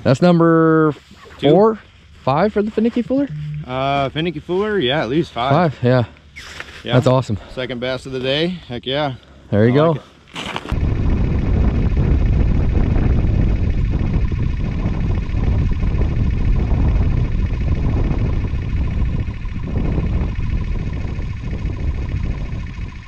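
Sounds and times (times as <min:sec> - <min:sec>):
wind buffeting microphone: 0:10.7 - 0:23.0.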